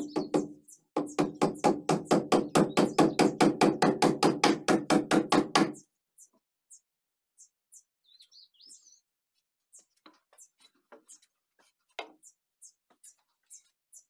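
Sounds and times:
hammer striking wood: 0.0 - 5.8
faint birds chirping: 0.0 - 14.0.

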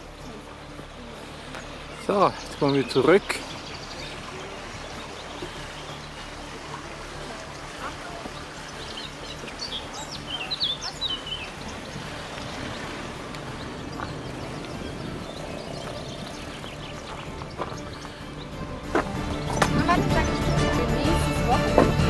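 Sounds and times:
small bird chirping: 8.2 - 20.7
outdoor rushing noise: 10.8 - 20.2.

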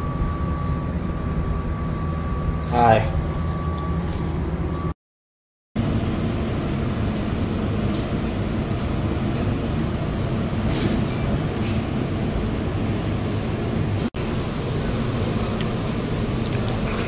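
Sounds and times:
air conditioning rumble: 0.0 - 5.0, 5.8 - 17.0.

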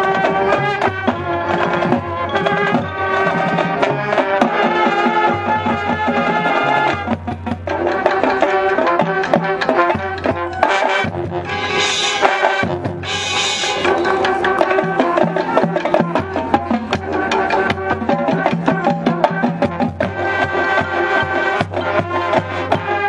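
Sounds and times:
drum line beating: 0.0 - 23.0
marching band playing: 0.0 - 23.0.

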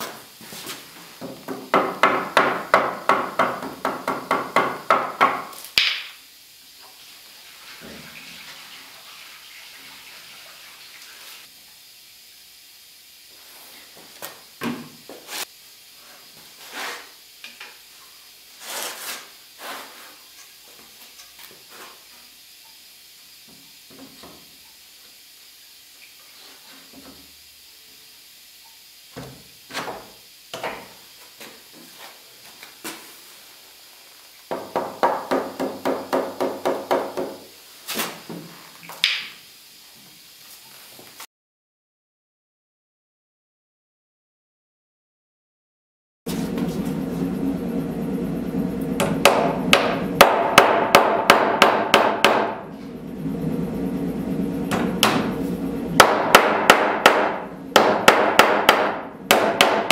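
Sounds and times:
mallet knocking on wood: 56.0 - 59.9.

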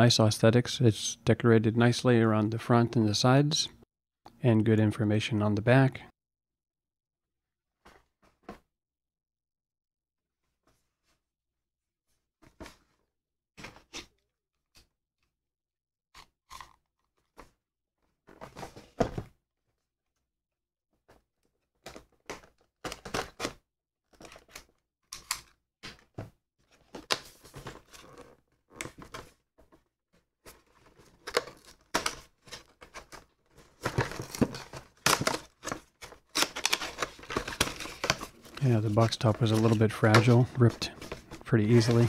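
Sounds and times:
cardboard tearing: 33.9 - 38.6.

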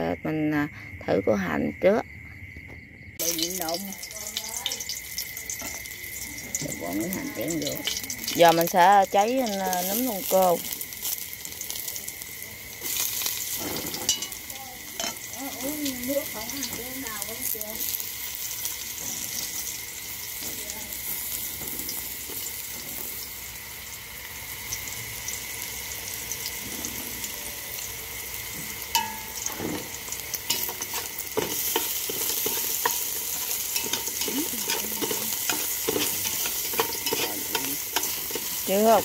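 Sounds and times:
mushrooms sizzling in a pot: 3.2 - 39.0
chopsticks scraping a pot: 30.5 - 39.0.

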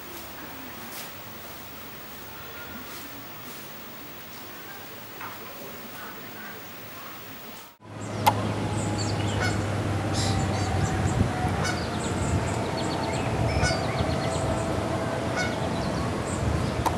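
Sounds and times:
background hiss: 0.0 - 7.8
birds calling and chirping: 0.0 - 16.9.

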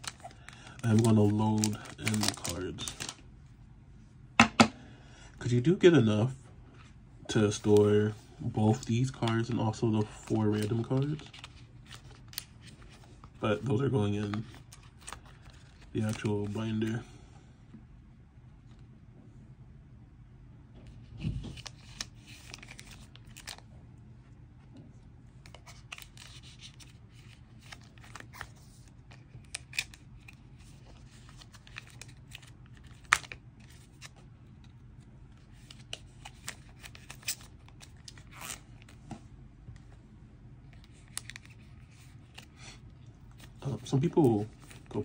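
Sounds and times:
plastic sleeves rustling: 0.0 - 3.3, 7.5 - 17.0, 21.0 - 23.7, 25.4 - 40.0, 40.7 - 45.0.

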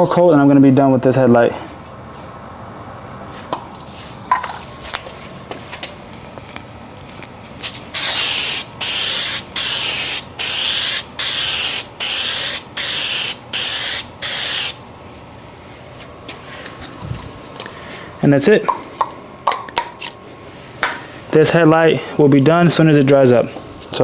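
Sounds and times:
aerosol spray can hissing: 7.9 - 14.8.

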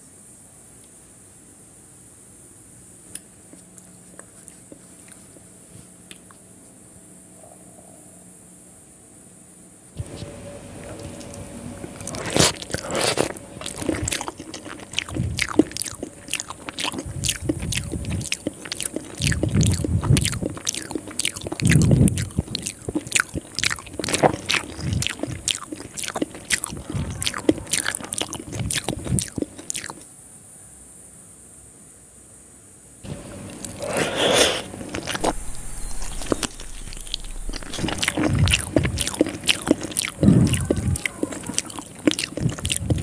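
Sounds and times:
wet chewing and lip smacking: 3.1 - 6.4, 10.8 - 30.0, 33.1 - 43.0.

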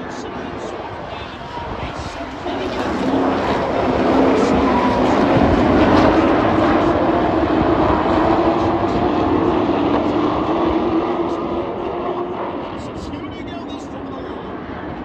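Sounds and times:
race truck engines droning: 0.0 - 15.0.

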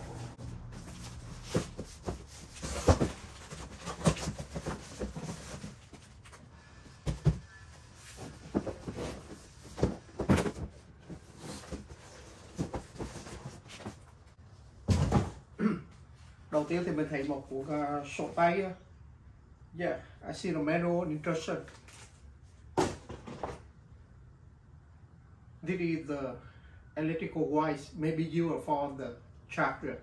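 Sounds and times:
cardboard scraping and rustling: 0.0 - 6.4, 7.0 - 14.1.

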